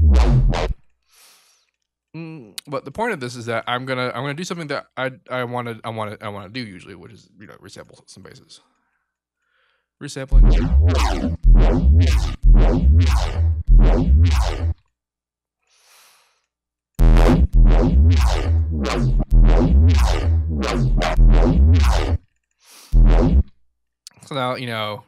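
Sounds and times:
heavy synth bass notes: 0.0s - 0.8s, 10.3s - 14.8s, 17.0s - 22.2s, 23.0s - 23.5s.

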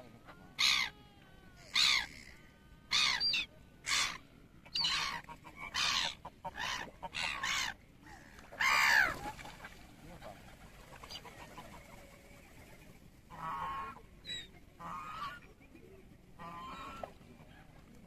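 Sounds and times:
gulls squawking: 0.1s - 0.9s, 1.6s - 11.9s.

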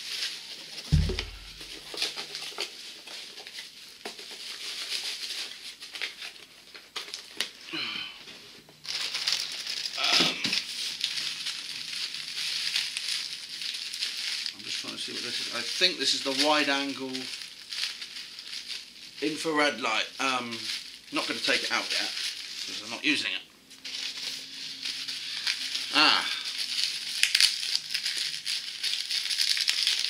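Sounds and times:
plastic packaging crinkling: 0.0s - 7.9s, 8.8s - 30.0s
sharp thump: 0.9s - 1.8s.

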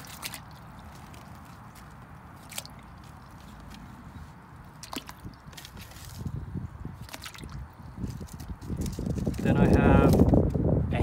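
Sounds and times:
soft wet knocks: 0.0s - 3.9s, 4.6s - 6.3s.

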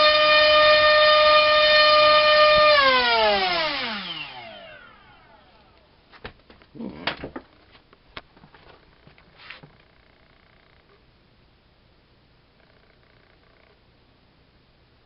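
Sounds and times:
drone motor whine spinning down: 0.0s - 5.9s.

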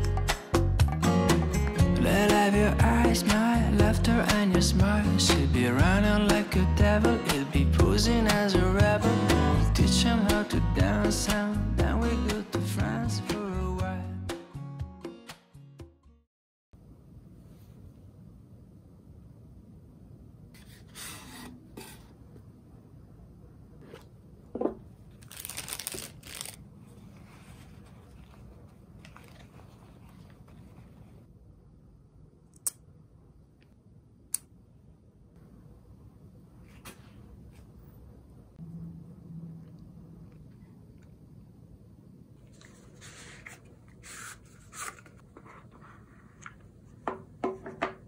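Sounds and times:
wrapping crinkling and rustling: 25.1s - 31.1s
soft rubbing and rustling: 26.3s - 31.3s, 42.4s - 47.0s.

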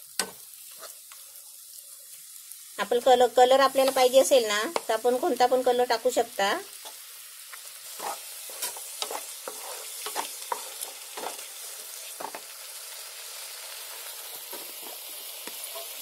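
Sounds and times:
food sizzling in a pan: 0.0s - 16.0s
wooden spatula scraping a pan: 0.2s - 1.2s, 7.8s - 12.5s, 14.0s - 16.0s.

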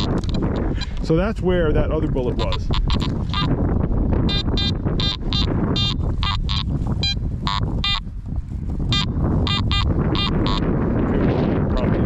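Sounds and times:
wind noise on microphone: 0.0s - 12.0s
metal detector high beeps: 4.3s - 8.0s, 8.9s - 10.6s.

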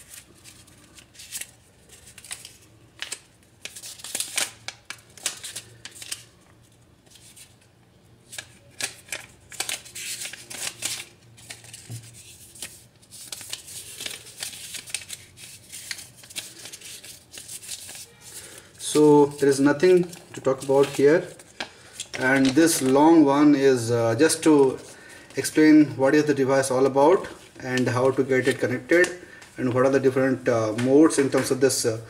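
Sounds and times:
paper rustling and crinkling: 0.0s - 23.2s.

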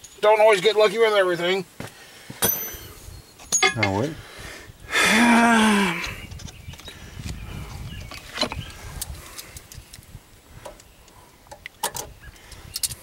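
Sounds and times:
metal parts clicking: 3.5s - 4.0s, 11.8s - 13.0s.

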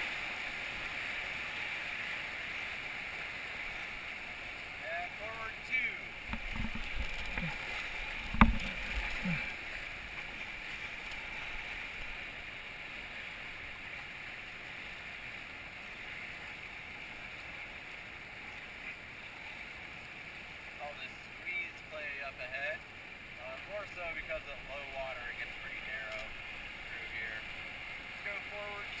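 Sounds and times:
river water rushing: 0.0s - 29.0s
soft thumps: 6.3s - 7.6s, 8.2s - 9.4s.

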